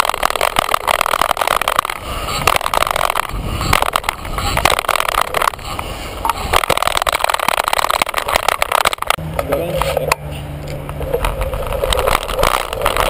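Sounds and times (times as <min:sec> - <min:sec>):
wind on microphone: 0:00.0 - 0:09.2
bike rattling over bumps: 0:00.0 - 0:10.0, 0:10.8 - 0:13.0
tyres on dirt: 0:00.0 - 0:13.0.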